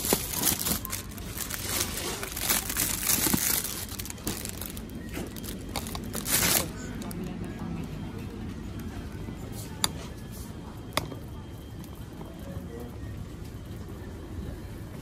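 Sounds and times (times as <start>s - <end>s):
plastic wrapping crinkling: 0.0s - 7.3s.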